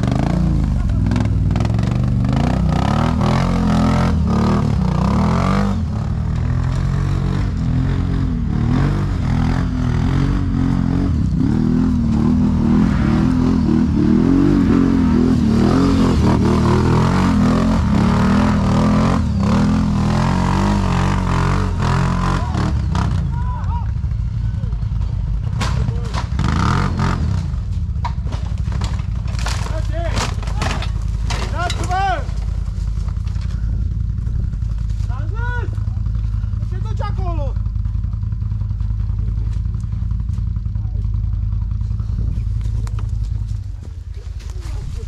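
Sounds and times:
atv engine revving: 0.0 - 45.0
machine clattering over rocks: 28.1 - 33.6.

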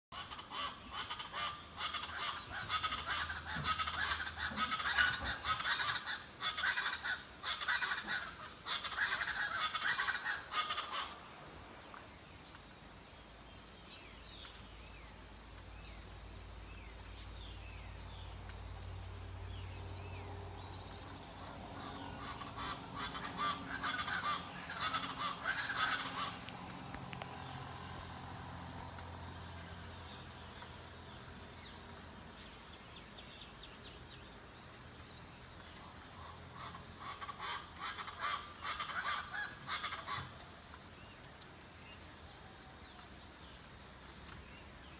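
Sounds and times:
raucous bird group calls: 0.2 - 12.0, 18.2 - 31.8, 35.2 - 41.2.

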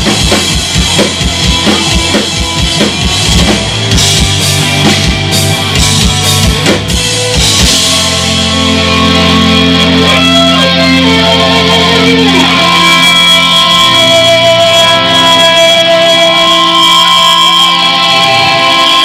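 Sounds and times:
drums hitting: 0.0 - 8.7
live rock band playing: 0.0 - 19.0
sliding guitar line: 0.0 - 19.0.

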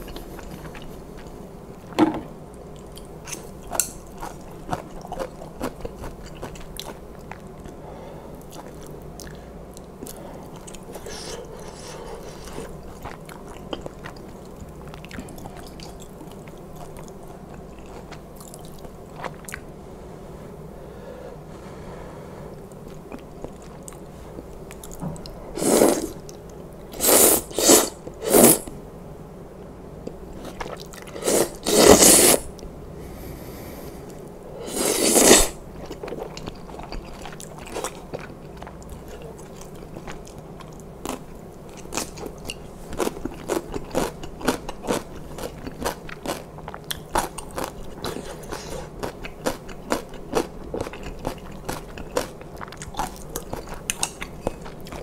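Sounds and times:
slurping noodles: 25.6 - 26.2, 27.0 - 28.7, 31.1 - 32.5, 34.6 - 35.6
wet chewing with mouth clicks: 35.1 - 55.0.

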